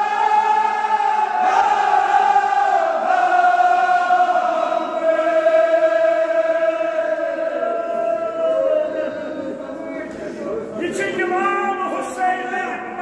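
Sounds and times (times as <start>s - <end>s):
men chanting in unison: 0.0s - 9.9s.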